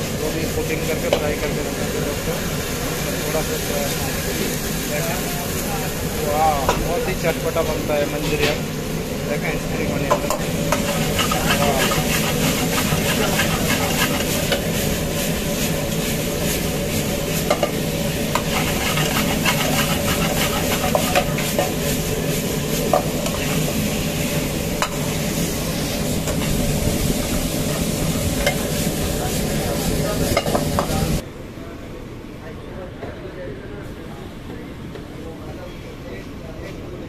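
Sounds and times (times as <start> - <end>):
sauce sizzling in wok: 0.0 - 31.2
steady hum: 0.0 - 36.2
ladle clinking and scraping pan: 10.1 - 14.7, 18.4 - 21.9.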